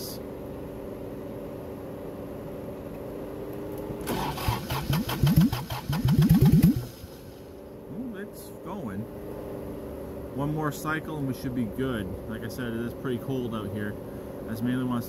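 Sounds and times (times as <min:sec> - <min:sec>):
steady low hum: 0:00.0 - 0:15.0
diesel engine cranking: 0:04.0 - 0:07.5.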